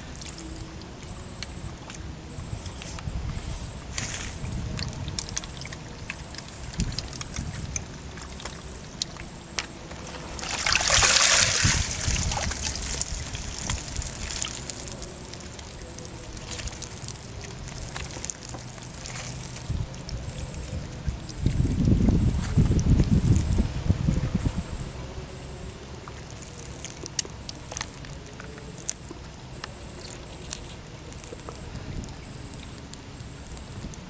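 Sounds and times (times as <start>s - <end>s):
water splashing and dripping: 4.0s - 23.5s.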